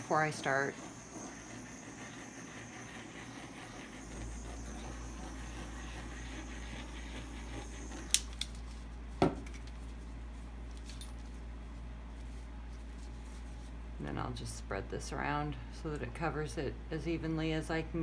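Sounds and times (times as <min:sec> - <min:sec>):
craft torch hissing: 0:00.0 - 0:08.4
torch switch click: 0:08.0 - 0:08.6.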